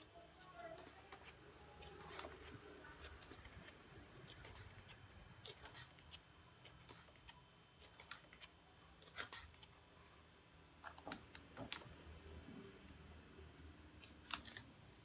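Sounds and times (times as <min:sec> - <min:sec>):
book pages turning: 0:00.0 - 0:09.8.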